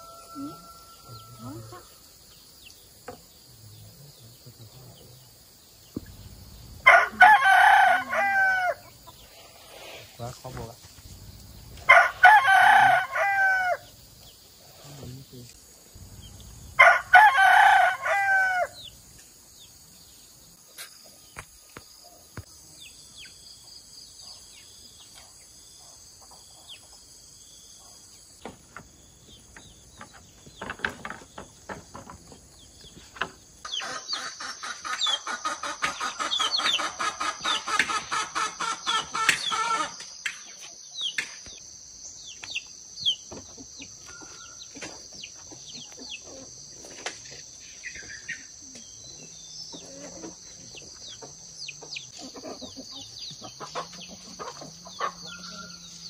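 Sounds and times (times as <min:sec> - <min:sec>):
rooster crowing: 0:00.0 - 0:02.1, 0:06.8 - 0:09.0, 0:11.8 - 0:14.0, 0:16.7 - 0:18.9, 0:54.9 - 0:56.0
high insect drone: 0:00.0 - 0:56.0
bird chirps: 0:13.8 - 0:16.8, 0:47.3 - 0:56.0.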